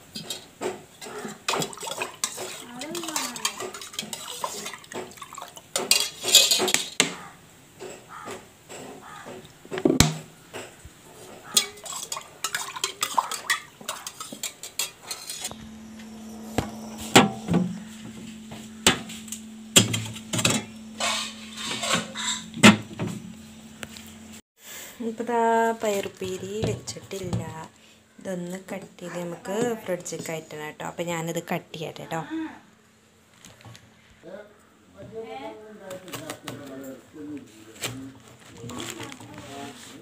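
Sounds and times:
steel pot clinking and knocking: 0:00.1 - 0:07.0, 0:11.5 - 0:23.2
liquid swished in a pot: 0:01.2 - 0:06.8, 0:11.4 - 0:15.5
fridge humming: 0:15.1 - 0:24.4.

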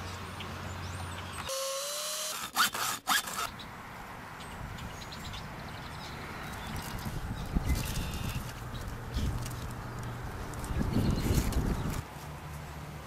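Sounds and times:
handheld power tool whine: 0:01.5 - 0:03.5.

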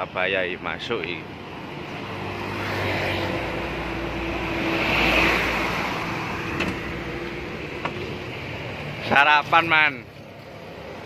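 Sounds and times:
vehicle passing by: 0:01.5 - 0:09.6.

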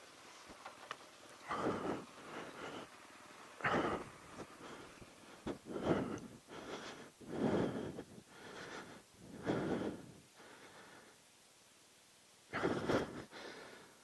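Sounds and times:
person breathing heavily: 0:01.4 - 0:03.0, 0:03.6 - 0:11.3, 0:12.5 - 0:14.0.

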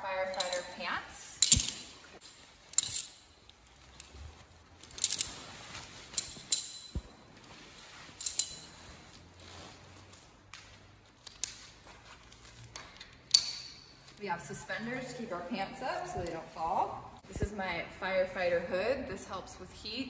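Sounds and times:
metal hardware clinking: 0:00.2 - 0:07.2, 0:08.0 - 0:09.0, 0:13.0 - 0:14.1.

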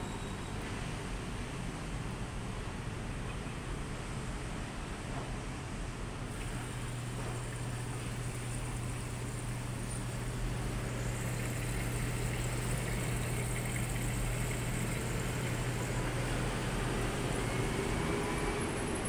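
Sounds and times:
washing machine running: 0:06.3 - 0:19.0.

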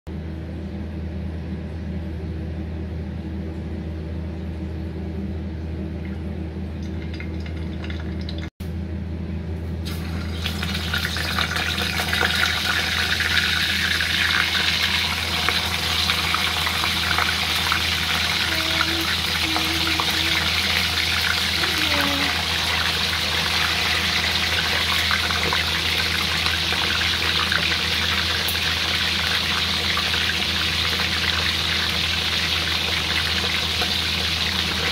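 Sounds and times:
low hum: 0:00.1 - 0:34.9
fish sizzling in hot oil: 0:09.9 - 0:34.9.

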